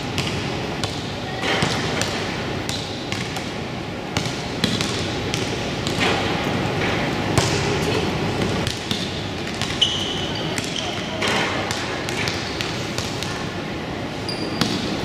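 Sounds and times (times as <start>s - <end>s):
basketball bouncing on gym floor: 0.0s - 13.4s, 14.5s - 15.0s.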